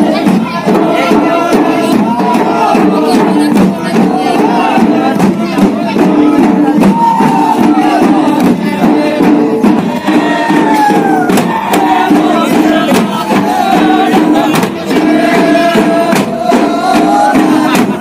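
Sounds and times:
crowd noise: 0.0s - 18.0s
dhol drums beating: 0.0s - 18.0s
hand drum beating: 0.0s - 18.0s.

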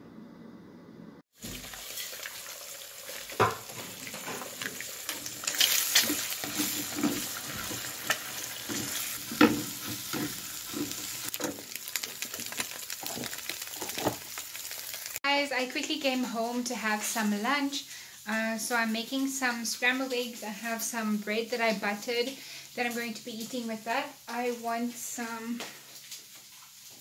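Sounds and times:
eggs sizzling in a frying pan: 1.3s - 27.0s
spatula scraping a pan: 3.6s - 11.5s
spatula knocking on pan: 9.3s - 10.4s.

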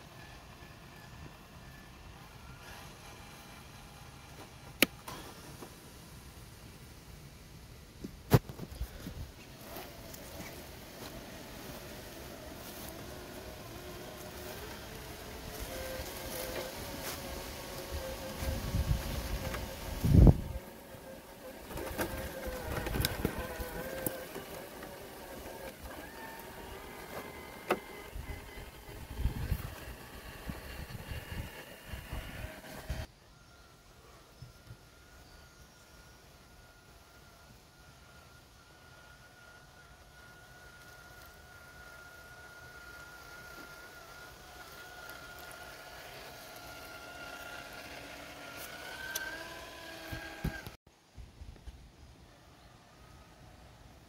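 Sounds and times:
rc car motor and gears whining: 0.0s - 5.8s, 8.3s - 50.8s.

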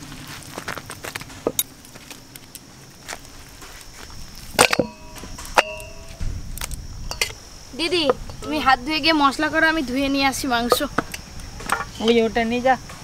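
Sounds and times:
metal bowl clanking and ringing: 4.6s - 6.2s, 7.1s - 7.4s.

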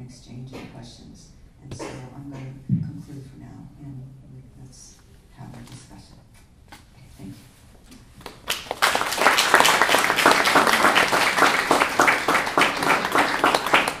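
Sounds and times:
audience applauding: 8.2s - 14.0s.

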